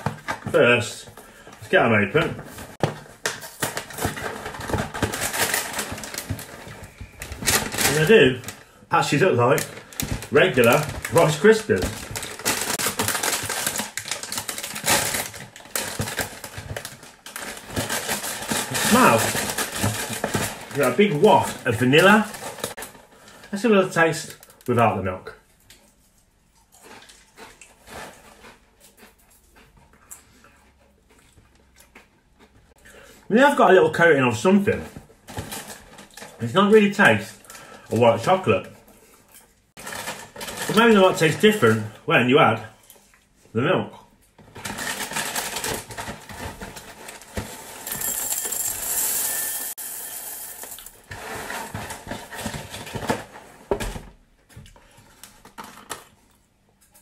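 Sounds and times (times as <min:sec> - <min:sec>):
mouth chewing crunchy cereal: 0:26.5 - 0:33.2
cereal rattling into glass bowl: 0:47.6 - 0:51.8.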